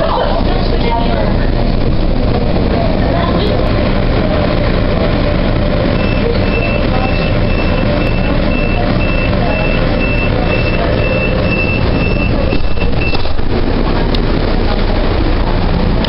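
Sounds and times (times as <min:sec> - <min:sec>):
train running rumble: 0:00.0 - 0:16.0
high electronic beep: 0:06.0 - 0:13.3.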